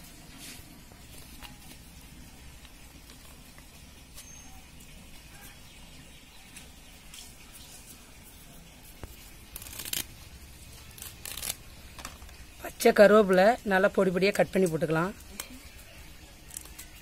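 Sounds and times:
leaves rustling: 0.0s - 12.7s.

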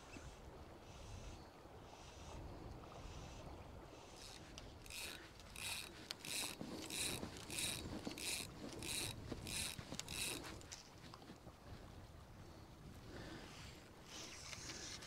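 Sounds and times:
fly line zipping through rod: 4.2s - 10.8s.

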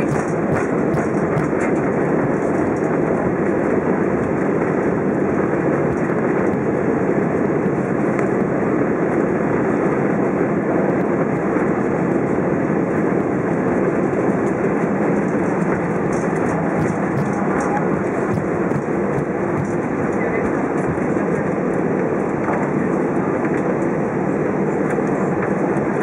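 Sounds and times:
aircraft cabin rumble and hiss: 0.0s - 26.0s.

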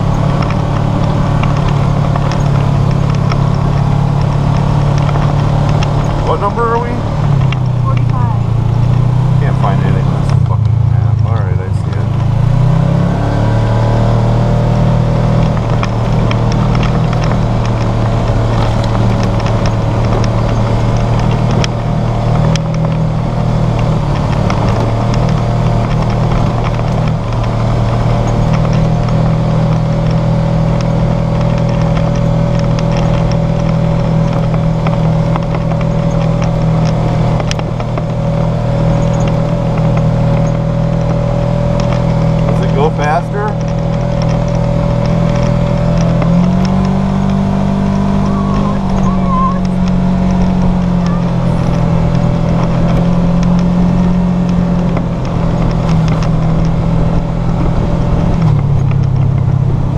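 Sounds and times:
vehicle engine running steadily: 0.0s - 59.9s
light ticks and rattles: 15.3s - 59.9s.

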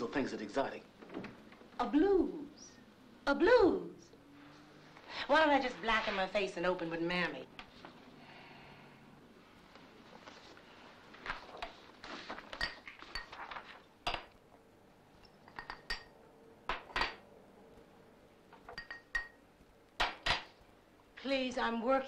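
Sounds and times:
dishes and cutlery clinking: 12.4s - 14.3s, 15.2s - 17.2s, 18.6s - 19.4s.

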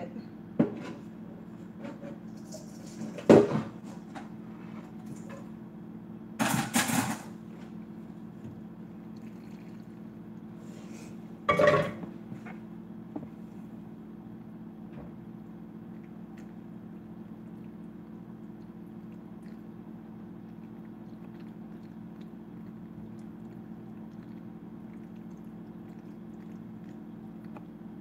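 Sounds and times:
steady low hum: 0.0s - 28.0s
metal pot clanking: 11.5s - 12.0s.

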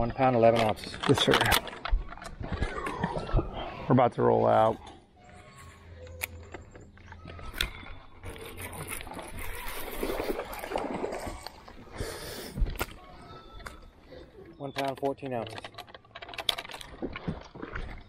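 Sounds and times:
water splashing and gurgling: 8.2s - 13.1s, 16.3s - 18.0s.

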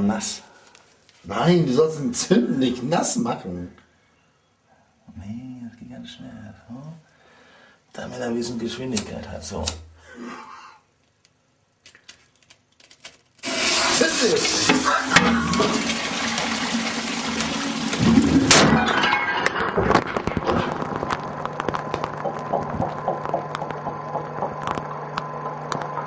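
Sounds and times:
cistern refilling hum: 13.4s - 18.8s, 20.8s - 26.0s
toilet flushing: 13.4s - 19.8s
sharp crack: 17.9s - 22.4s.

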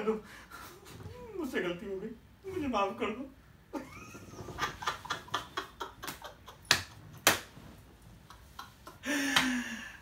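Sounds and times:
man laughing loudly: 3.8s - 7.0s.

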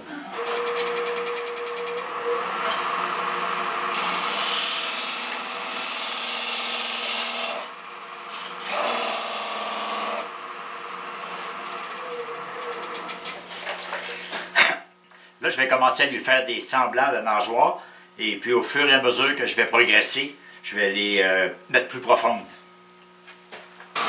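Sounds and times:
wood lathe motor hum: 0.0s - 13.5s
turning tool scraping wood: 0.4s - 3.0s, 3.9s - 7.7s.

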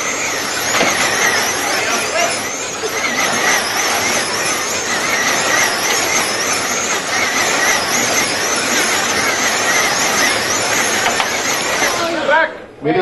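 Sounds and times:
running noise rush: 0.0s - 12.5s
slot car electric motors whining: 0.0s - 12.6s.

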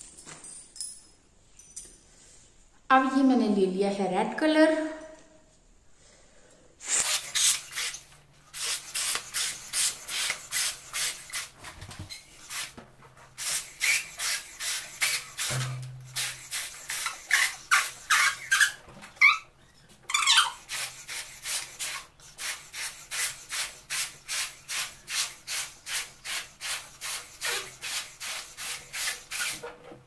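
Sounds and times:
deep breath: 5.8s - 6.8s
puffs of breath into balloon: 5.9s - 11.5s, 13.4s - 15.5s, 16.1s - 18.5s, 20.5s - 29.6s.

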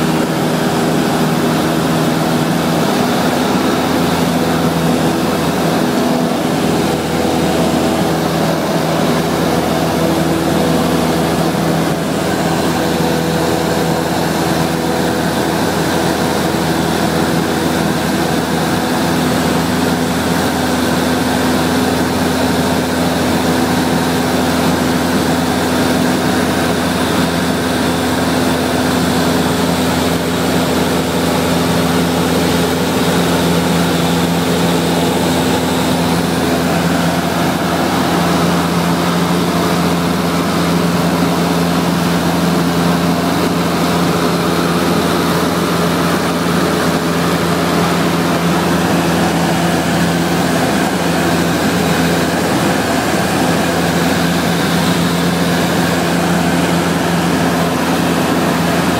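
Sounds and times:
aircraft engine droning in cabin: 0.0s - 58.9s.

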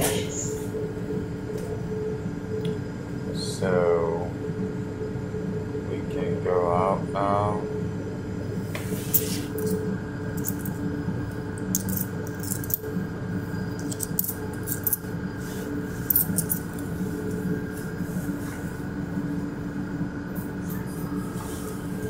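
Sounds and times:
train rumble and hum: 0.0s - 4.4s.

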